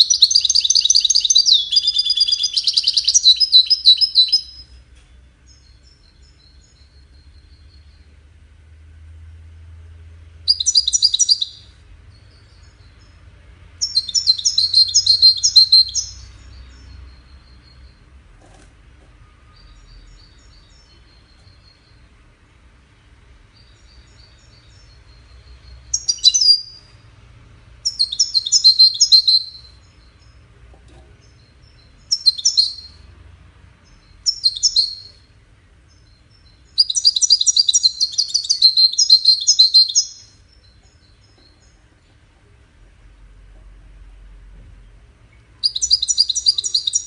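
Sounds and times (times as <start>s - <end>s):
goldfinch singing: 0.0s - 4.8s, 10.5s - 18.2s, 23.5s - 27.1s, 27.8s - 30.5s, 31.2s - 33.1s, 33.8s - 41.9s, 45.4s - 47.0s.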